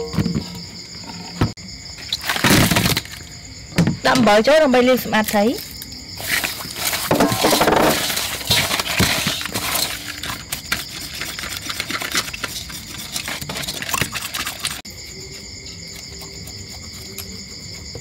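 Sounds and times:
high chirring of insects: 0.0 - 18.0
knife scraping fish: 6.2 - 14.8.

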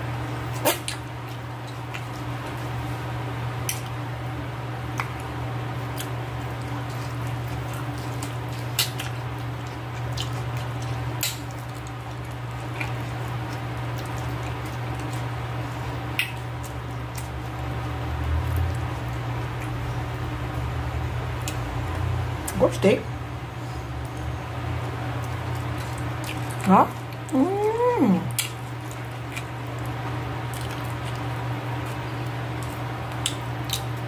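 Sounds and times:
person chewing wet food: 0.0 - 22.6, 23.8 - 34.0
steady low hum: 0.0 - 34.0.

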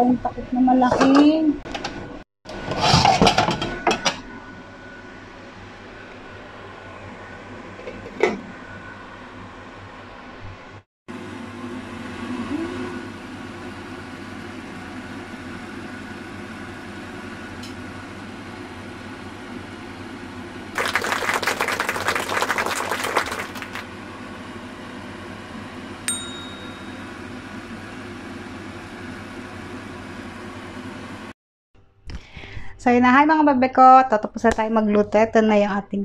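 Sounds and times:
bell-like ding: 26.1 - 27.3.

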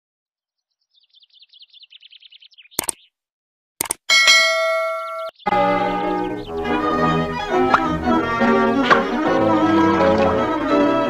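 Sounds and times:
mouse click: 2.8 - 3.0, 3.8 - 4.1
notification bell ding: 4.1 - 5.5
music: 5.5 - 11.0.

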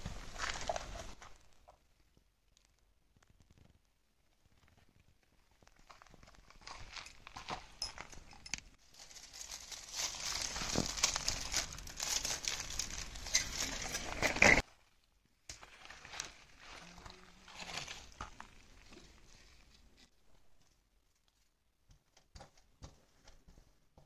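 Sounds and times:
foil and plastic crinkling: 8.8 - 14.6.

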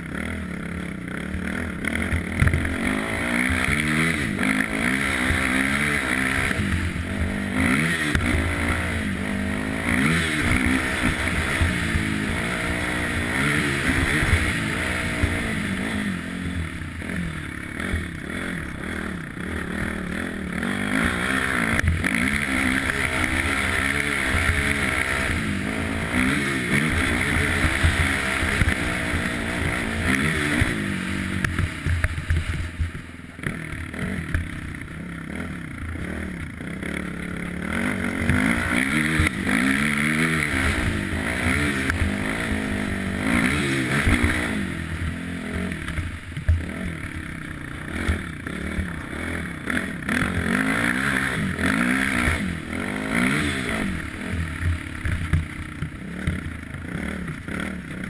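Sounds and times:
quad engine revving: 0.0 - 58.0.

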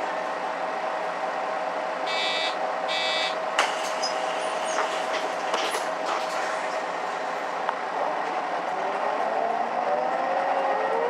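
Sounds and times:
bus running hum: 0.0 - 11.0
short electronic beeps: 2.1 - 3.4.

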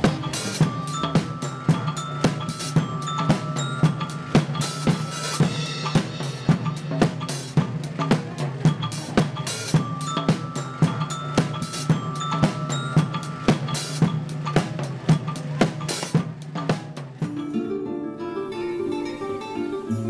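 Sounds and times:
drum kit steady beat: 0.0 - 17.5
short ringing pitched tones: 0.5 - 6.8.

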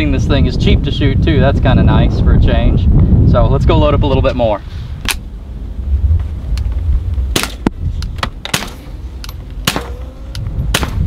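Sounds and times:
suppressed pistol shots: 7.3 - 7.7, 8.4 - 8.9, 9.6 - 10.1, 10.7 - 11.0
bullets clanging on steel: 7.3 - 11.0.

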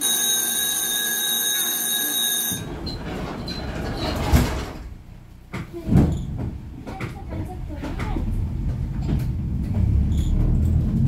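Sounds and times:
tram low rumble: 2.5 - 11.0.

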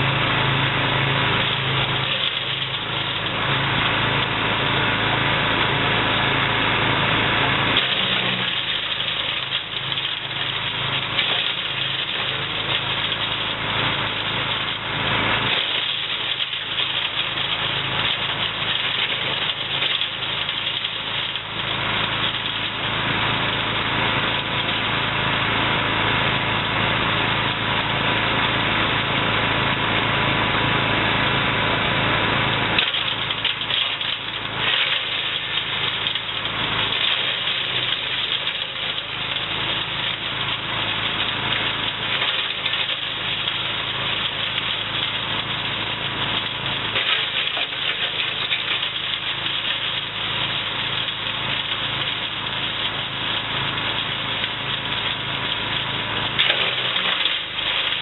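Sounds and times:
branches crackling in chipper: 0.0 - 58.0
wood chipper engine hum: 0.0 - 58.0.

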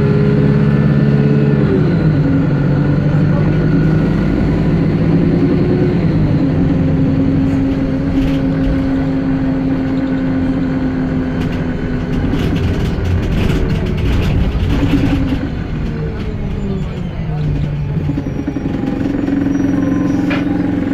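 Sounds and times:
bus engine drone: 0.0 - 20.9
drivetrain whine: 0.0 - 20.9
interior rattles and clicks: 6.9 - 20.9.

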